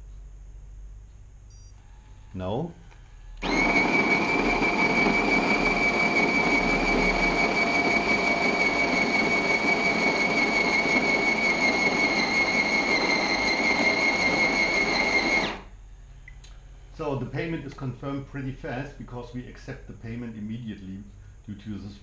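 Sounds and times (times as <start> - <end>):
coffee grinder whining: 3.4 - 15.7.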